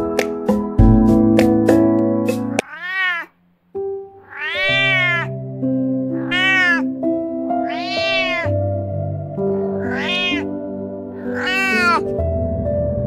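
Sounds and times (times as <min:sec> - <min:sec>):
cat meowing: 0:02.5 - 0:03.4, 0:04.2 - 0:05.4, 0:06.1 - 0:08.6, 0:09.6 - 0:10.6, 0:11.2 - 0:12.2
soft background music: 0:03.7 - 0:13.0.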